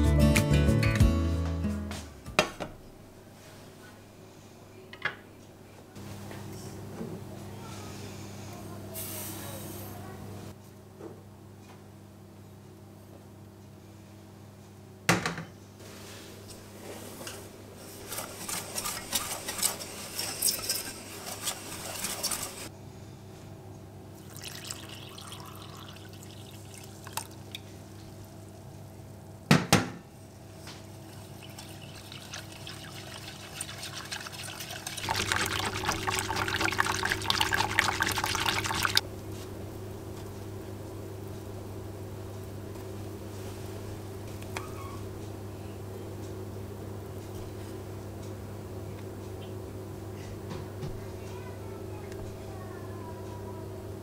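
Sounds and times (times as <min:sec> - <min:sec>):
whisk scraping in saucepan: 0:17.9 - 0:22.7, 0:31.1 - 0:39.0
milk pouring: 0:24.2 - 0:28.3, 0:31.0 - 0:39.0.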